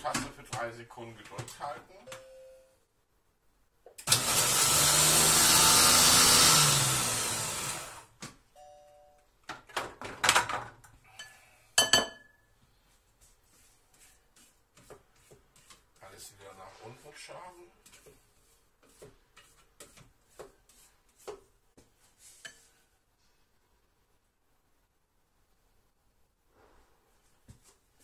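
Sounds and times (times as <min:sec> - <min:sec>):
food processor motor spinning: 0:04.0 - 0:08.1.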